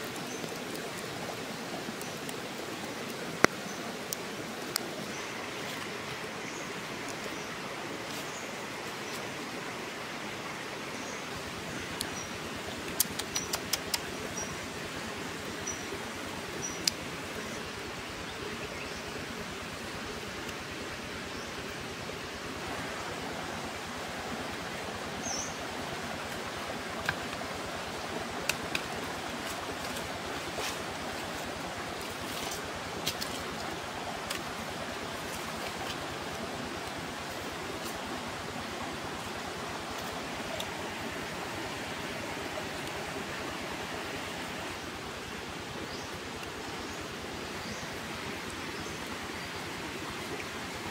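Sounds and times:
wood fire crackling: 0.0s - 4.9s, 24.6s - 38.5s.

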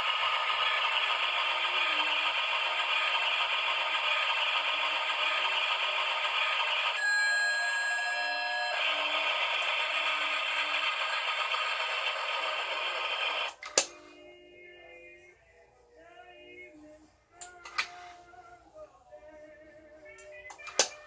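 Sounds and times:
toy train running noise: 0.0s - 14.2s.

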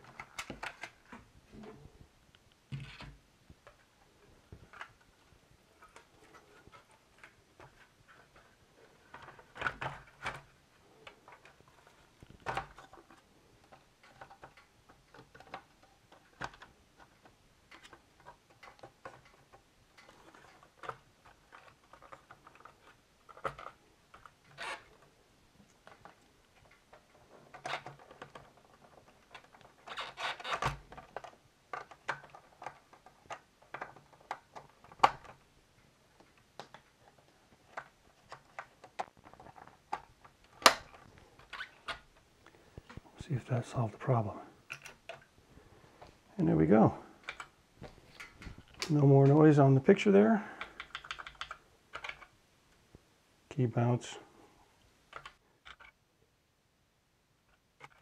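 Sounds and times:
plastic keyboard parts clicking: 0.0s - 1.2s, 5.8s - 35.4s, 36.1s - 43.0s, 47.2s - 49.4s, 50.5s - 52.3s, 55.1s - 56.0s, 57.5s - 58.0s.

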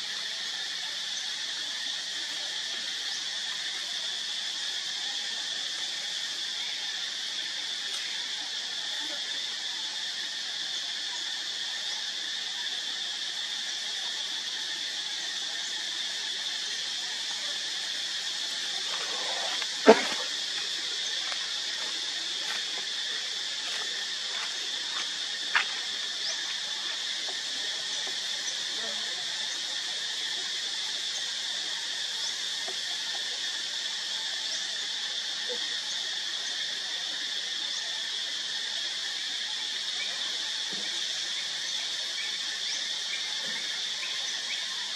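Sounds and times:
insect chorus drone: 0.0s - 44.9s.

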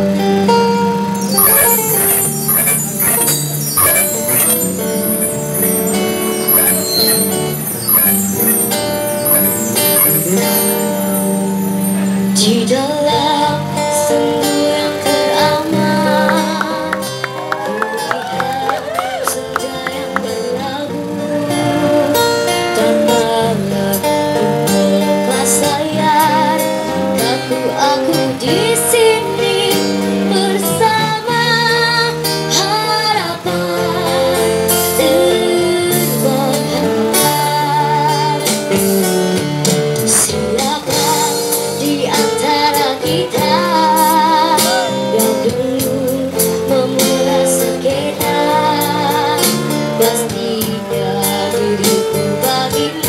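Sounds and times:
keyboard accompaniment: 0.0s - 17.2s
acoustic guitar: 0.0s - 53.0s
girl singing into a microphone: 22.1s - 53.0s.

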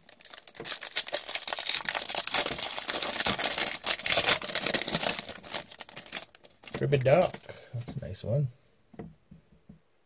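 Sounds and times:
foil wrapper tearing and crinkling: 0.0s - 7.6s.

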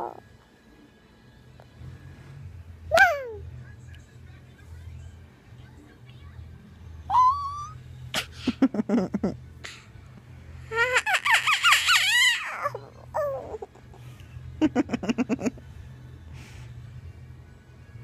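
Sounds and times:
toddler squealing and laughing: 7.1s - 7.8s, 10.7s - 13.8s.

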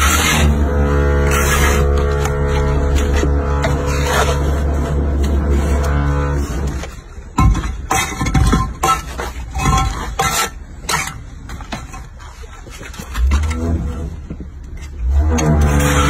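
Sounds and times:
trowel knocking on concrete blocks: 7.2s - 12.8s.

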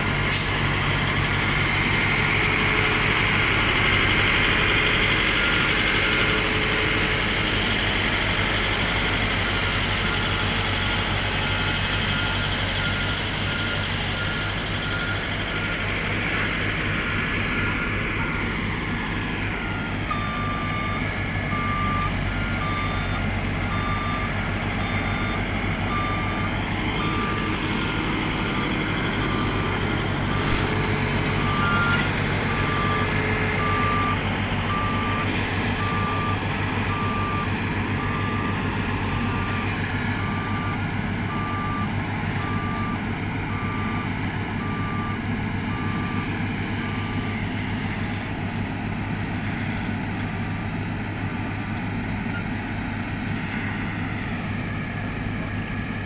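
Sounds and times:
reversing alarm beeping: 0.0s - 48.6s, 52.1s - 56.0s
diesel engines running: 0.0s - 56.0s.

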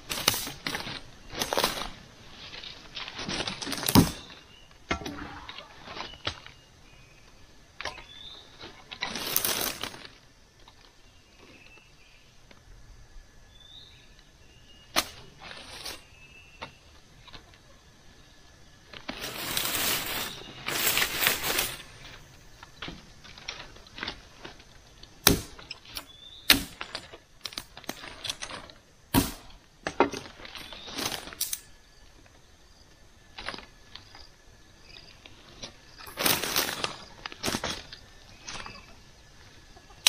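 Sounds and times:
rustling leaves and brush: 0.0s - 40.0s
dry wood snapping: 22.6s - 31.7s.

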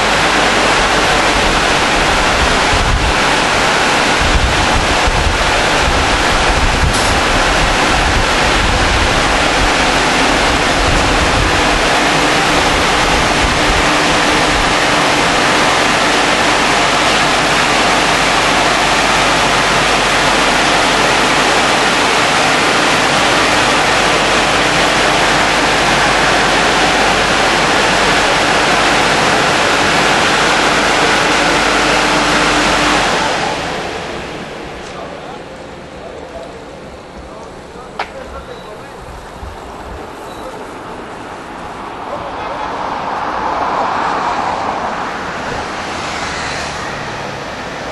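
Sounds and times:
rush of spray and air: 0.0s - 34.8s.

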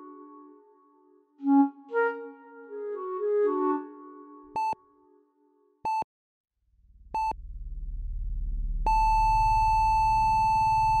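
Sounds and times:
low pulsing rumble: 6.6s - 11.0s
continuous flatline tone: 8.9s - 11.0s.

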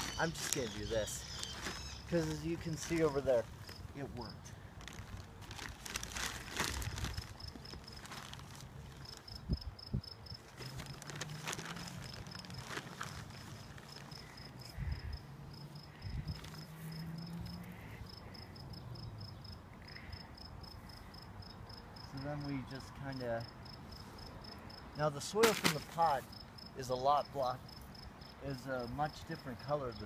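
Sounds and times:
hands rustling in potting soil: 0.0s - 9.4s, 10.4s - 14.8s
cricket chirping: 6.8s - 22.7s, 23.4s - 25.0s.

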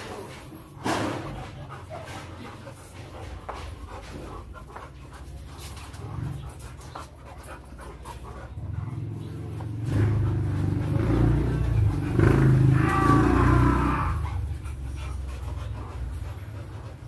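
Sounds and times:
dogs panting: 0.0s - 17.0s.

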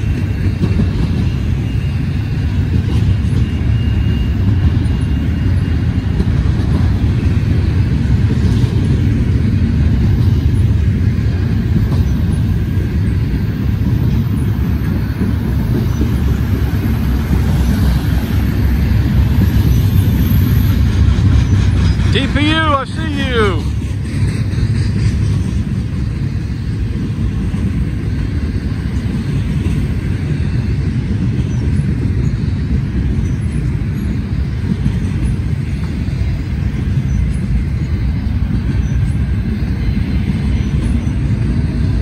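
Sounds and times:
train wheels rumbling on rails: 0.0s - 42.0s
faint high-pitched squeal: 3.1s - 6.0s.

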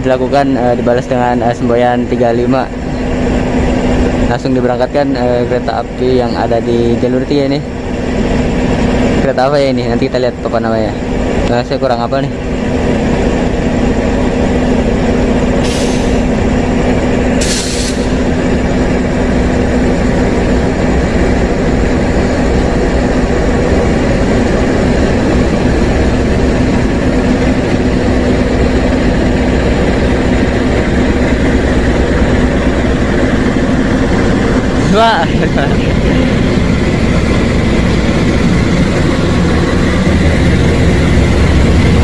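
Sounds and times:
diesel locomotive engine drone: 0.0s - 42.0s
short hisses: 15.6s - 16.2s, 17.4s - 18.2s.

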